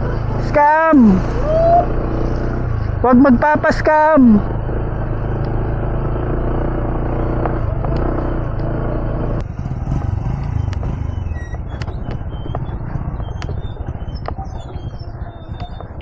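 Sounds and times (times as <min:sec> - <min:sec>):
scooter engine running: 0:04.3 - 0:16.0.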